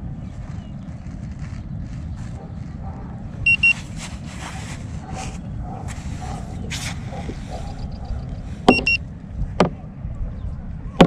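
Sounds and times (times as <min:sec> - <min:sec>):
short high beeps: 0:03.5 - 0:03.8, 0:08.7 - 0:09.0.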